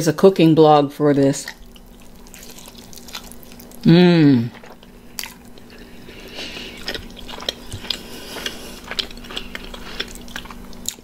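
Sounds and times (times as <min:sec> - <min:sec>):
person chewing food: 0:01.4 - 0:11.0.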